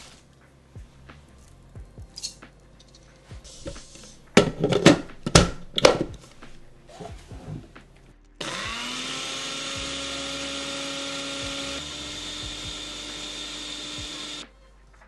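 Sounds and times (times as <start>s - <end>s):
blender motor whirring: 8.4s - 14.4s.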